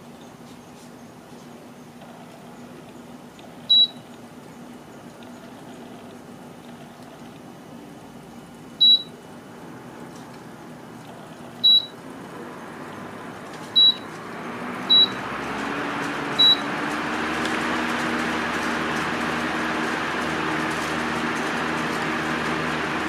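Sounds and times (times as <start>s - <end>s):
fan airflow rush: 0.0s - 23.0s
fan short high beeps: 3.7s - 4.0s, 8.8s - 9.2s, 11.6s - 12.0s, 13.7s - 14.1s, 14.9s - 15.2s, 16.4s - 16.7s.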